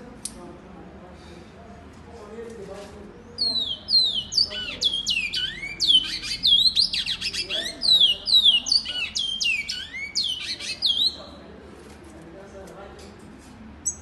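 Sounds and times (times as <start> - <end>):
finch singing whistled notes: 3.4 - 11.3.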